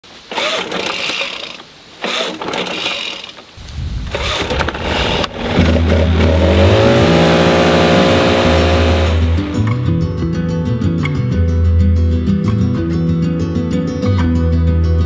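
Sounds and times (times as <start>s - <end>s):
leaf blower engine starting: 0.3s - 9.8s.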